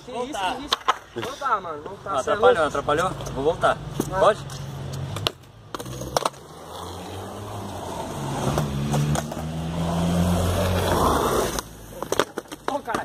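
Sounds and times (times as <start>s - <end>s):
skateboard wheels rolling on concrete: 0.0s - 13.0s
skateboard clacks: 0.6s - 2.0s, 5.1s - 6.5s, 10.8s - 13.0s.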